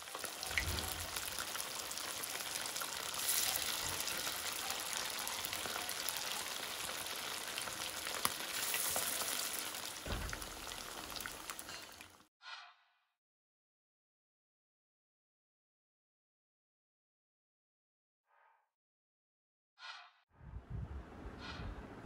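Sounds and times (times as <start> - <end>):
chicken deep-frying in oil: 0.0 - 12.3.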